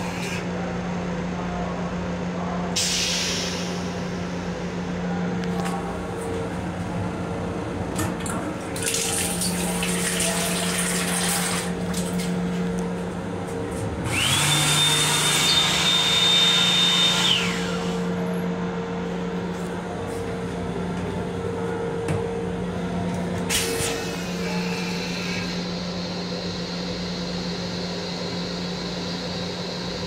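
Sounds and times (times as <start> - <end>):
steady train hum: 0.0 - 14.4, 17.3 - 30.0
faucet running water: 8.7 - 12.2
hand dryer whine and blowing: 14.0 - 18.0.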